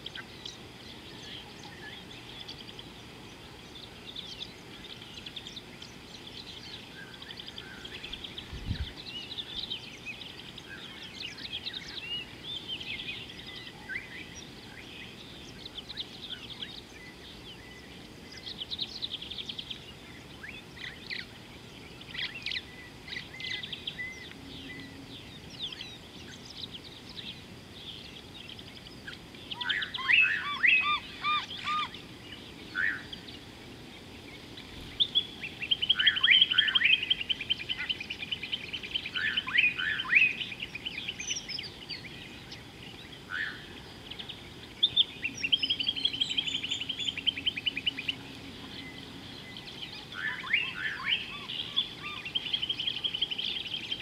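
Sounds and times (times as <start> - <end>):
outdoor background hiss: 0.0 - 54.0
small birds chirping: 0.0 - 54.0.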